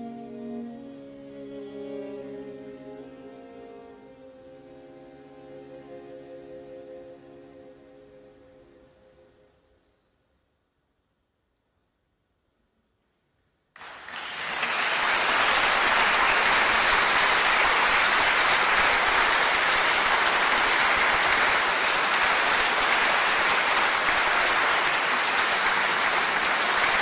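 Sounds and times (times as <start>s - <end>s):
audience applauding: 13.8s - 27.0s.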